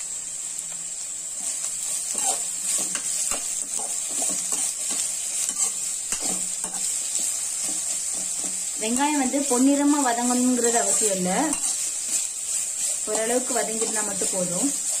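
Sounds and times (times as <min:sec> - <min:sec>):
onions sizzling in hot oil: 0:00.0 - 0:15.0
metal spatula scraping pan: 0:02.0 - 0:15.0.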